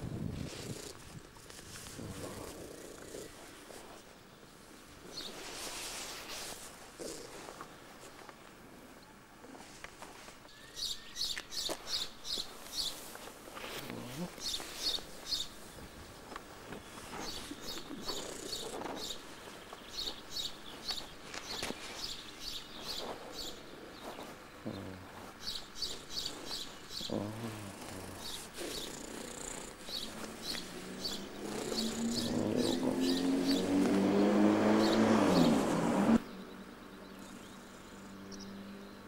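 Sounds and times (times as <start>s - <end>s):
small birds chirping: 0.4s - 9.7s, 10.4s - 39.0s
engine-like drone: 30.1s - 39.0s.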